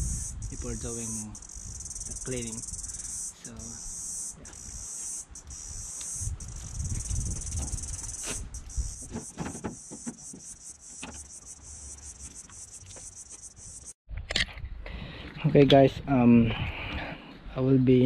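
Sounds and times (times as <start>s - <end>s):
insects chirping: 0.0s - 14.0s.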